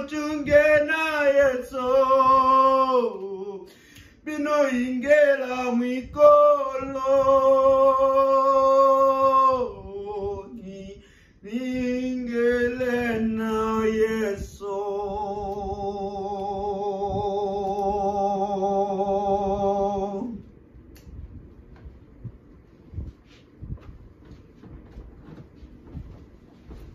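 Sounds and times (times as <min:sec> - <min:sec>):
man singing unaccompanied: 0:00.0 - 0:20.5.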